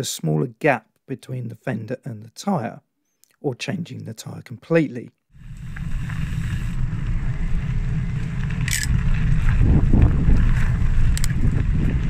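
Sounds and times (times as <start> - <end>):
bike tyres rumbling on gravel: 5.4 - 12.0.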